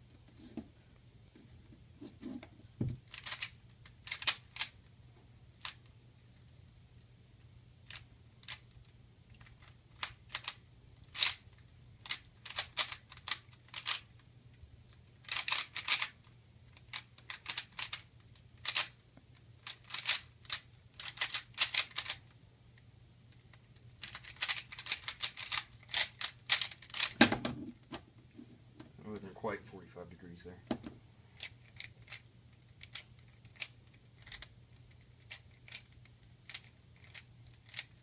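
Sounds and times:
plastic cube layers clicking: 0:03.0 - 0:04.8, 0:07.8 - 0:14.1, 0:15.2 - 0:19.0, 0:19.6 - 0:22.2, 0:23.5 - 0:27.3, 0:31.4 - 0:38.0.

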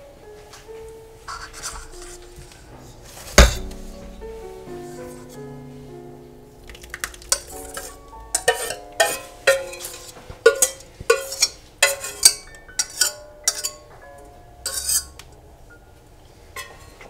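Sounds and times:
whisk clinking in metal bowl: 0:06.7 - 0:13.9, 0:14.6 - 0:15.2.

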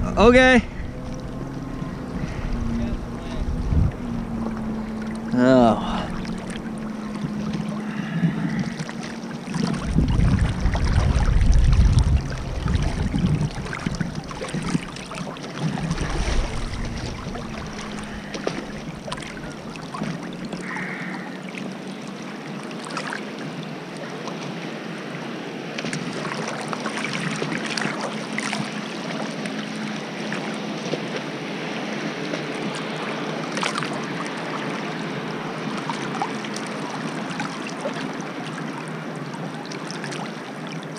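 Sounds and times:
wind rumble on microphone: 0:00.0 - 0:20.7
boat engine humming: 0:00.0 - 0:40.9
water sloshing and splashing: 0:00.0 - 0:40.9.

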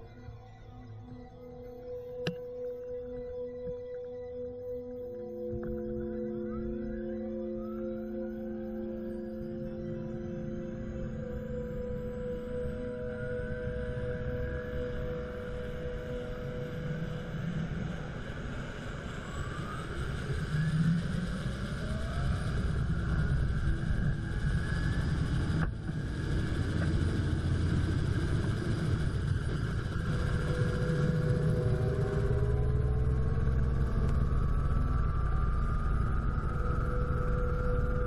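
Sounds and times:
helicopter turbine whine: 0:09.4 - 0:38.0.

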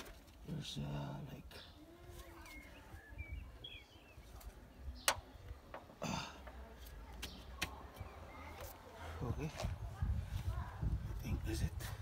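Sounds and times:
faint bird chirps: 0:01.5 - 0:05.5.

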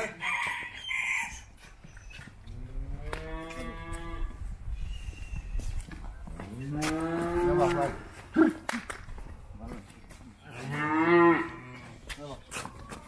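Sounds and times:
calves mooing: 0:02.6 - 0:04.4, 0:06.5 - 0:08.1, 0:10.4 - 0:11.9.

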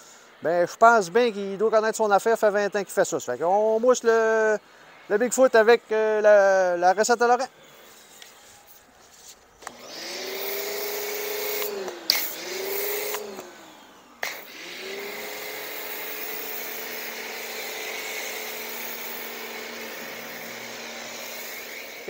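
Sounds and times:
pressure washer motor whine: 0:09.6 - 0:22.0
foam spraying hiss: 0:14.2 - 0:22.0.

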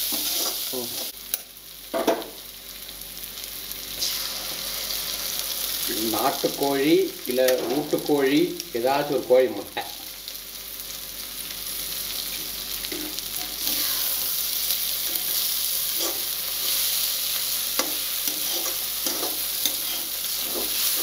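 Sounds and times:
food sizzling in hot oil: 0:00.0 - 0:21.0
metal spatula scraping pan: 0:17.8 - 0:21.0.

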